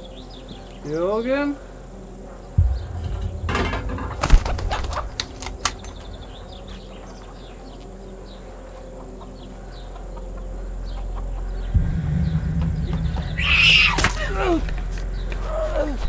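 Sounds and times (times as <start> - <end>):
small birds chirping: 0.0 - 3.5, 4.2 - 16.0
low drone: 1.6 - 16.0
sharp knock: 2.6 - 6.6.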